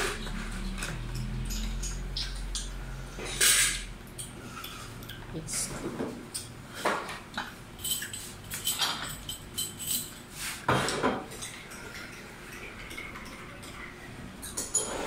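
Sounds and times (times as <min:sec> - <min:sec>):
glassware and utensils clinking: 0:00.0 - 0:04.9, 0:06.3 - 0:15.0.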